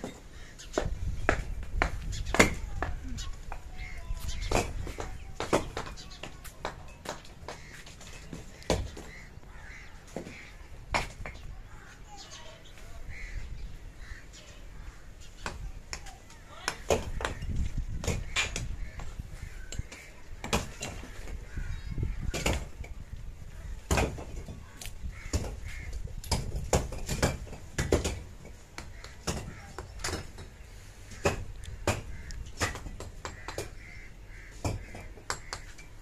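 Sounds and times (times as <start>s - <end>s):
birds cawing: 0.0s - 6.5s, 7.1s - 15.8s, 16.4s - 26.5s, 28.8s - 36.0s.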